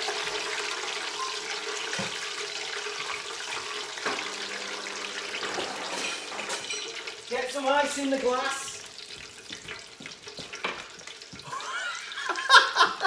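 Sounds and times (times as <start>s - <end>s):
oil bubbling and sizzling: 0.0s - 13.0s.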